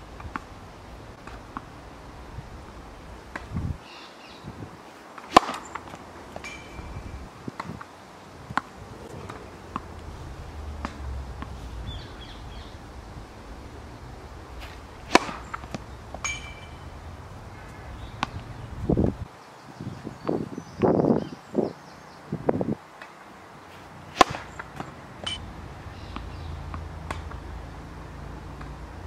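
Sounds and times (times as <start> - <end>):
tennis ball struck by racket: 3.3 - 3.6, 5.2 - 6.9, 7.5 - 13.6, 14.2 - 17.0, 17.6 - 18.6, 23.8 - 25.4, 26.1 - 27.4.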